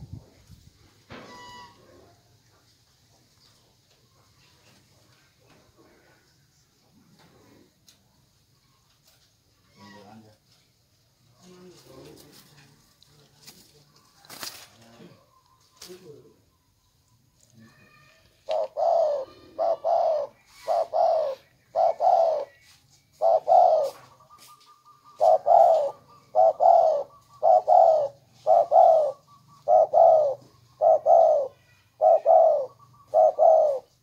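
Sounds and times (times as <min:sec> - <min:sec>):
dove cooing: 0:17.8 - 0:34.0.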